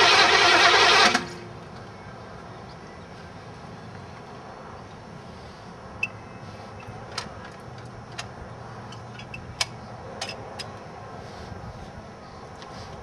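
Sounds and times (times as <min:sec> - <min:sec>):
sharp metallic clicks and taps: 0:07.1 - 0:10.8.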